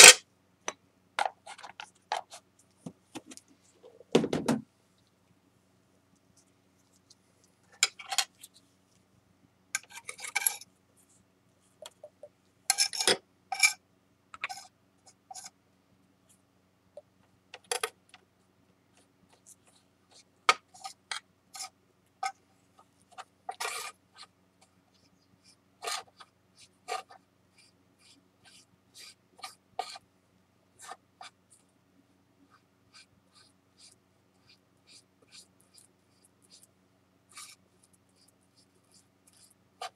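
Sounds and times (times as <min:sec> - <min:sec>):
metal spatula scraping glass board: 0:09.8 - 0:10.6, 0:12.7 - 0:13.8, 0:23.5 - 0:24.0.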